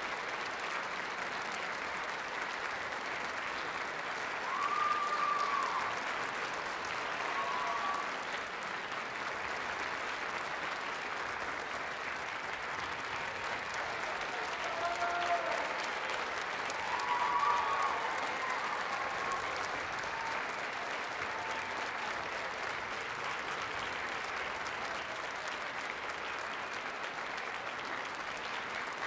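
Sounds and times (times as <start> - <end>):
audience applauding: 0.0 - 29.0
short cheers: 4.4 - 6.1, 7.0 - 8.2, 13.8 - 22.5.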